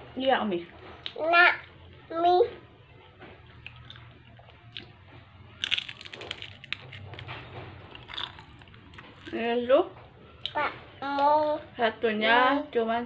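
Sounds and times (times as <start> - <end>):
crunching on a crispy snack: 3.5 - 5.0, 5.6 - 9.4.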